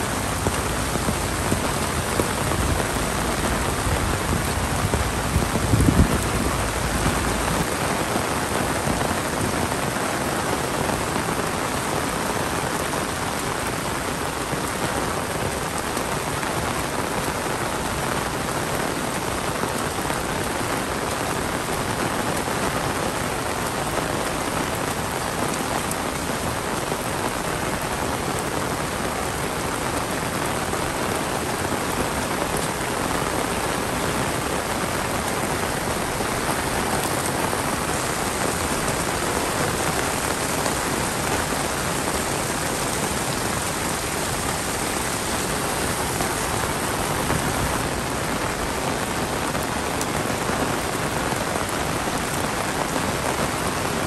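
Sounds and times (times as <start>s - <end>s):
heavy rain falling: 0.0s - 54.0s.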